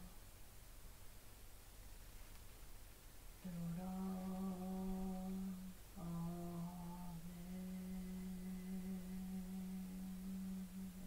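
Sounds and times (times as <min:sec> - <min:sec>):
woman humming chant notes: 0:00.0 - 0:00.2, 0:03.4 - 0:11.0.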